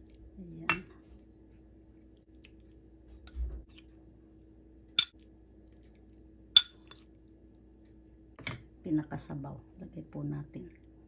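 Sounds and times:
spoon clinking on dishware: 6.6s - 7.0s.

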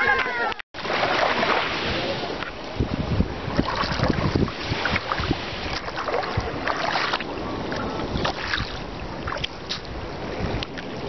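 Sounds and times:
wind rumbling on microphone: 0.0s - 11.0s
small waves lapping on shore: 0.8s - 11.0s.

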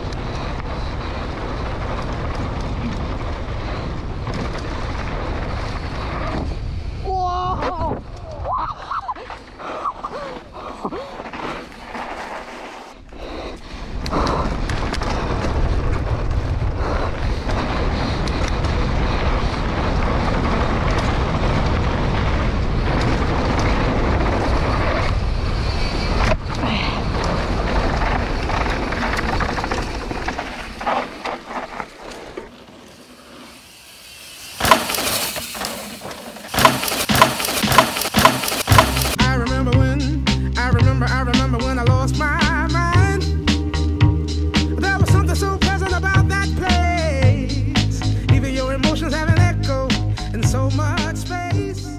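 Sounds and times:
tyres rolling over dirt and wood: 0.0s - 6.8s, 8.8s - 13.0s, 14.3s - 39.2s
wind rushing on microphone: 0.0s - 10.8s, 13.0s - 31.7s
mountain bike rattling: 0.0s - 40.0s
sharp clicks and knocks: 34.6s - 39.2s.

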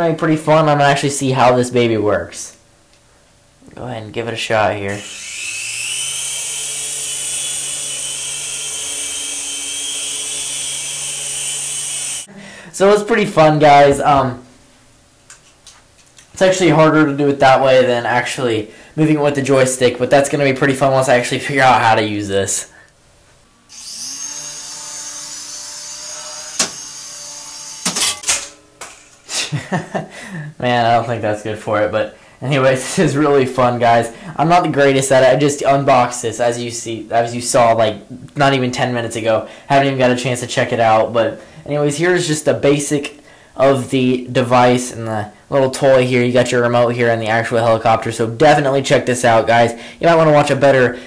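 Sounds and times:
toy helicopter whirring buzz: 4.9s - 12.3s, 23.7s - 28.2s.

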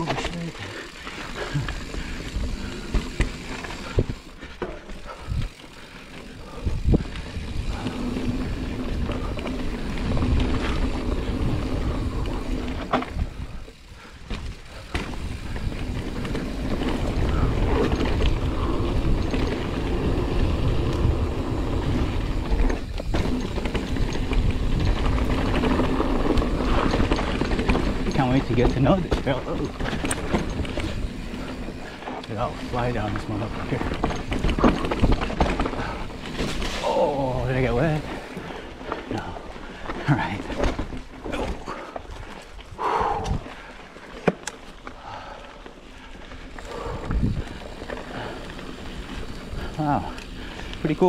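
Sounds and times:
bike tyre and trail noise: 0.0s - 51.0s
bike knocking on rocks: 14.2s - 18.4s.

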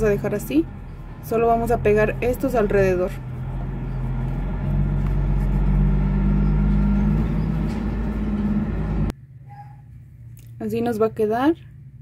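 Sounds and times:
engine rumbling: 0.0s - 9.3s.

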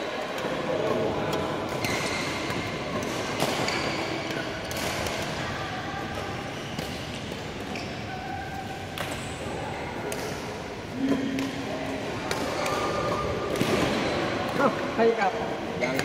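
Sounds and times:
sports hall background: 0.0s - 16.0s
rackets hitting shuttlecocks: 0.2s - 5.4s, 8.9s - 14.7s.

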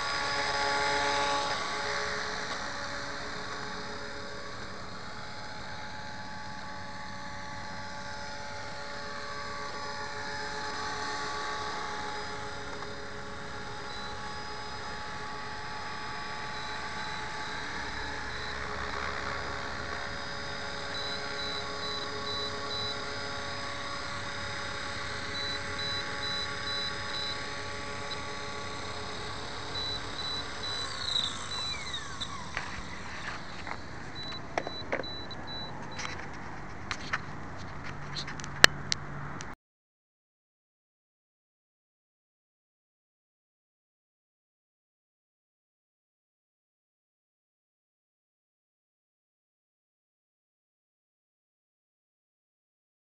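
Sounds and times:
electric helicopter motor whining: 0.0s - 39.4s.

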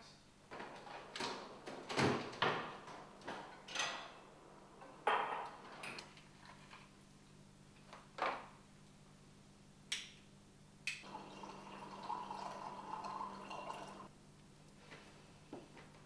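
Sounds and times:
tea pouring into mug: 11.1s - 14.1s.

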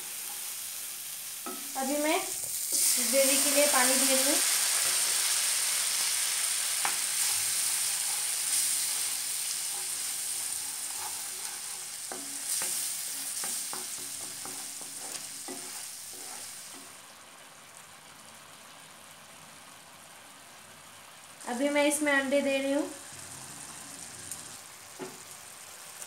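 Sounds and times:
masala sizzling in oil: 0.0s - 26.0s
wooden spatula scraping pan: 6.8s - 16.9s.

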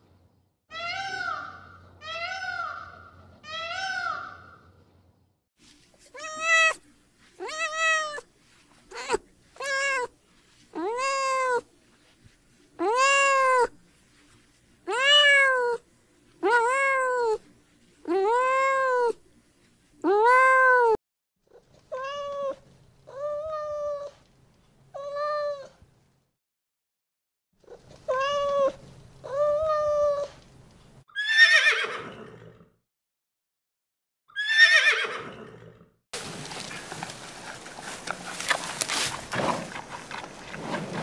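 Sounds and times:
cat meowing: 6.1s - 6.8s, 7.4s - 8.2s, 8.9s - 10.1s, 10.8s - 11.7s, 14.9s - 15.8s, 27.7s - 30.3s.

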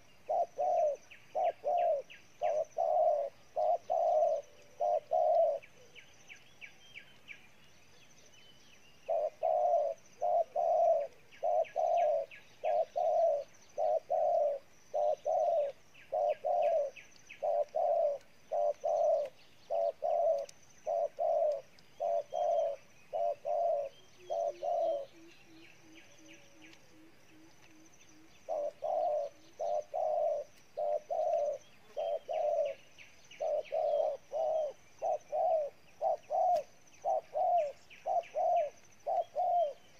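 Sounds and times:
doves cooing: 0.0s - 6.2s, 9.1s - 39.9s.

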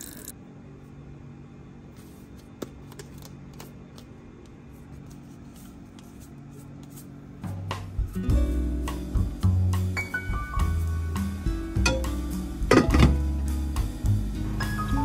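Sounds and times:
background music: 7.5s - 15.0s.

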